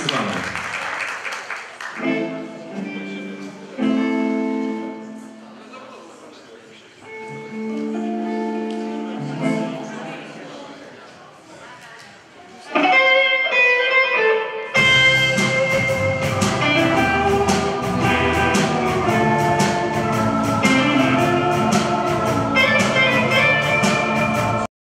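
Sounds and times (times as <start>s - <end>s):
electric guitar ringing notes: 2.0s - 5.5s, 7.1s - 10.2s, 12.7s - 24.7s
live rock band playing: 12.8s - 24.7s.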